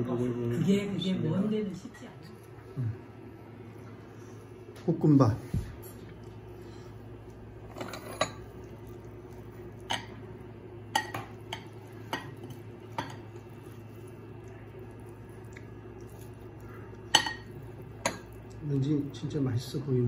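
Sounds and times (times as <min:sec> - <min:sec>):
steady low hum: 0:00.0 - 0:20.0
spoon clinking on ceramic plate: 0:10.9 - 0:13.3, 0:17.1 - 0:18.4.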